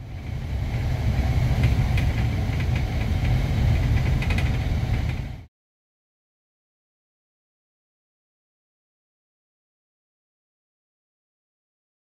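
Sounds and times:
bus engine and road rumble: 0:00.0 - 0:05.5.

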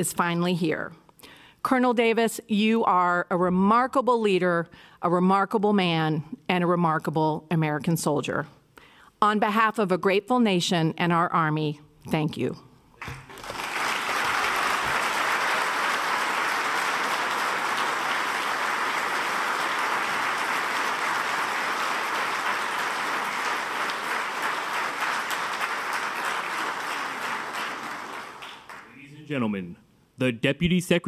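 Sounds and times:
audience applauding: 0:13.0 - 0:29.1.

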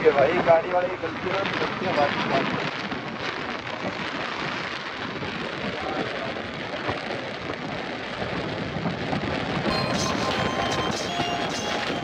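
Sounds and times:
wind rushing on microphone: 0:00.0 - 0:12.0.

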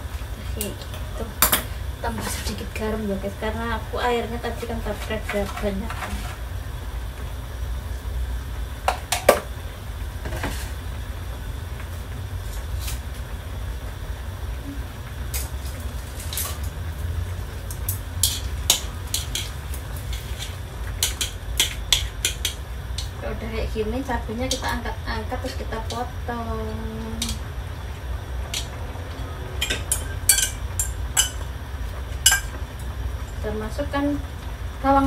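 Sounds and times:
steady low rumble: 0:10.8 - 0:35.0
utensils clicking against a wok: 0:15.3 - 0:16.8, 0:17.6 - 0:23.2, 0:24.5 - 0:24.8, 0:26.7 - 0:27.5, 0:28.4 - 0:31.4
chopsticks stirring noodles in wok: 0:15.3 - 0:23.2.

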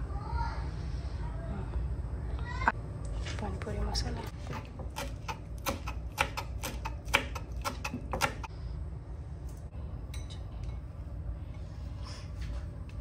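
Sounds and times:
knife chopping on wooden board: 0:04.5 - 0:08.5.

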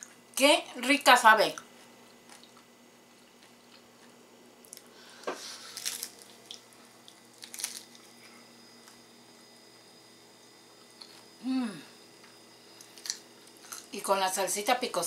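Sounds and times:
crunching crisp tostada shell: 0:03.3 - 0:09.1, 0:12.2 - 0:13.9.

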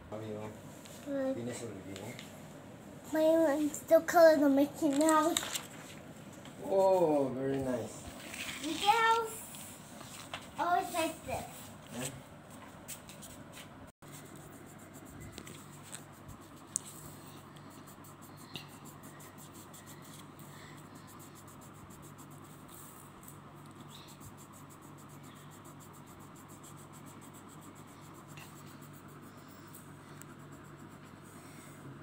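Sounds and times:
steady low hum: 0:00.0 - 0:32.0
pencil scratching on paper: 0:14.0 - 0:31.9.

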